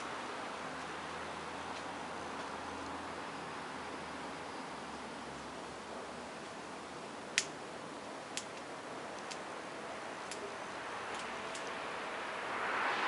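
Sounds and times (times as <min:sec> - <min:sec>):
steady background hiss: 0:00.0 - 0:13.0.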